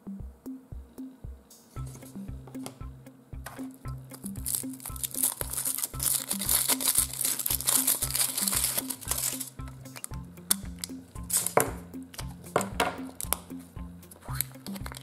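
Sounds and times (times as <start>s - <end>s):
music with pulsing bass beat: 0.0s - 15.0s
foil wrapper crinkling: 4.1s - 11.6s, 14.2s - 15.0s.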